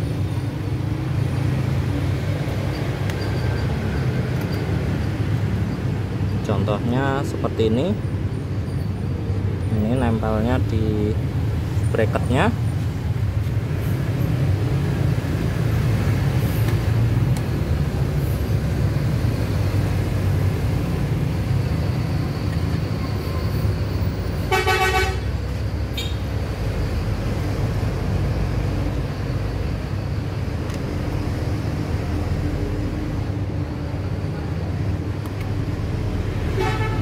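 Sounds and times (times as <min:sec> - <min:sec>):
road traffic rumble: 0:00.0 - 0:37.0
vehicle horn toot: 0:24.5 - 0:25.3, 0:26.0 - 0:26.2, 0:36.6 - 0:37.0.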